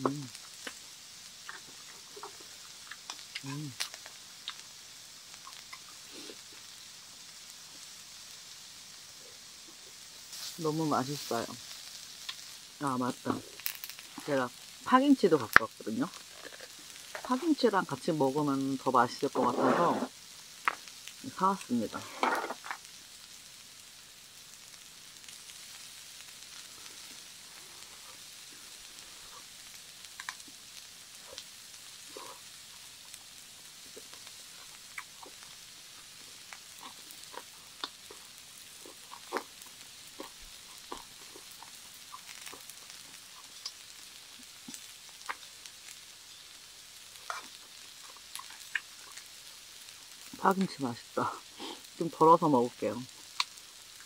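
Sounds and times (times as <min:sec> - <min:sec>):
meat sizzling on a grill: 0:00.0 - 0:54.0
fat popping and clicking: 0:30.2 - 0:30.5, 0:48.4 - 0:49.2.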